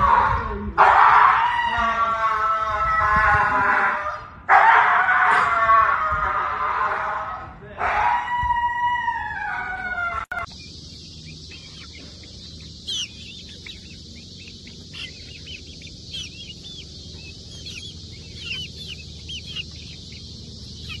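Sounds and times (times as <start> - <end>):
chicks peeping: 0.0 - 21.0.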